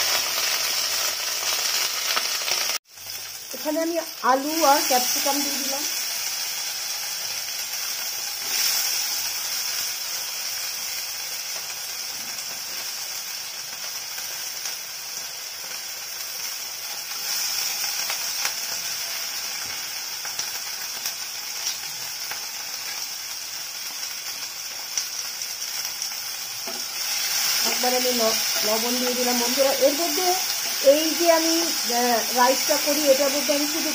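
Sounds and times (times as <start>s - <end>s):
vegetables sizzling in hot oil: 0.0s - 33.9s.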